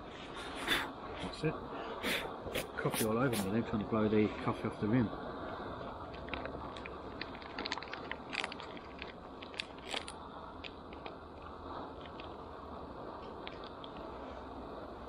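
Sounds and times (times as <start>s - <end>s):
paper bag crinkling: 7.2s - 10.1s.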